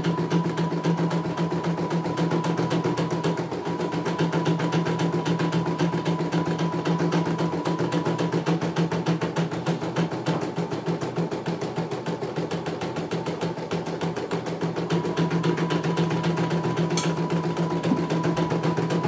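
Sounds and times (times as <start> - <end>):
motor hum: 14.6 - 19.0.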